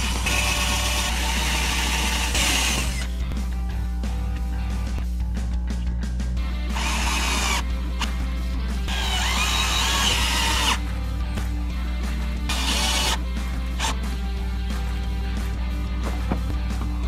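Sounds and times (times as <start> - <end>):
cordless drill running: 0.0 - 3.1, 6.7 - 8.1, 8.9 - 10.8, 12.5 - 14.0
background music: 0.0 - 17.0.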